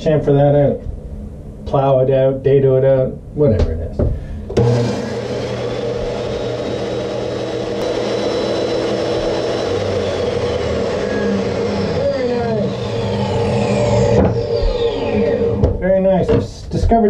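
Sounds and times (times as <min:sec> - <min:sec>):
table saw cutting plastic: 0:04.5 - 0:15.8.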